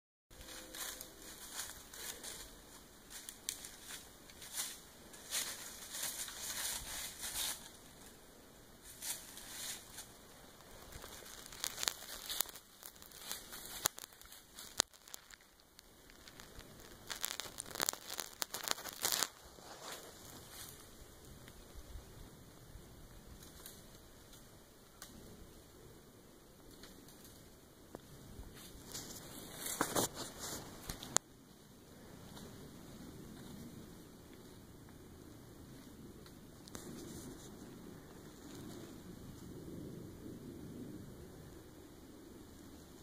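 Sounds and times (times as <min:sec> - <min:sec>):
rustling and crinkling: 0:00.3 - 0:21.6, 0:23.2 - 0:25.2, 0:26.7 - 0:39.8.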